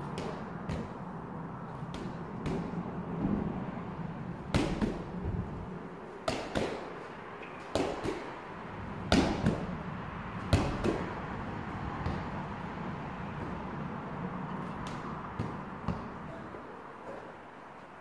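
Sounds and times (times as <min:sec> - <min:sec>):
medicine ball thud: 0:00.0 - 0:01.0, 0:01.8 - 0:03.7, 0:04.5 - 0:05.5, 0:06.2 - 0:07.0, 0:07.6 - 0:08.3, 0:09.0 - 0:09.8, 0:10.4 - 0:11.2, 0:12.0 - 0:12.4, 0:14.7 - 0:16.2
medicine ball smacking wall: 0:01.8 - 0:03.6, 0:04.5 - 0:05.4, 0:06.2 - 0:07.0, 0:07.7 - 0:08.3, 0:09.0 - 0:09.8, 0:10.4 - 0:11.2, 0:14.8 - 0:16.2.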